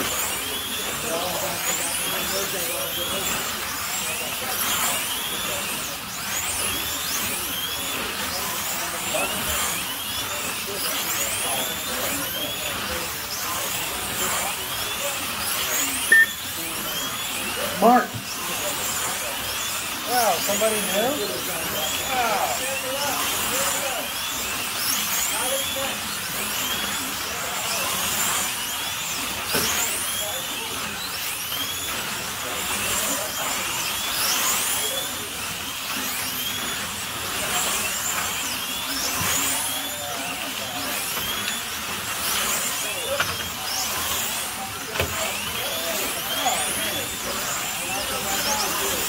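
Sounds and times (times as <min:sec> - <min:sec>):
slot car motors whining: 0:00.0 - 0:49.0
short high beep: 0:16.1 - 0:16.5.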